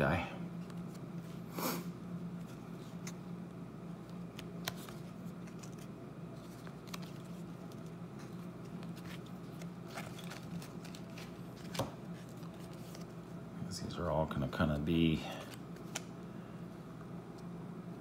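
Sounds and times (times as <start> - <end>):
steady low hum: 0.0 - 18.0
cards flipped by hand: 2.4 - 3.3, 4.0 - 13.2, 15.4 - 16.2.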